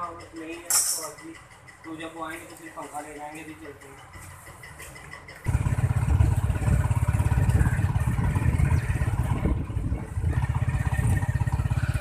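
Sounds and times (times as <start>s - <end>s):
motorcycle engine running: 3.9s - 12.0s.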